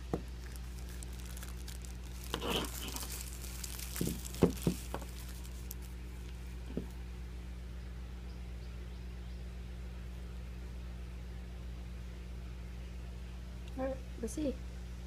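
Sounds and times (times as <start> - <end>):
packaging crinkling and rustling: 0.0 - 6.8
low hum: 0.0 - 15.0.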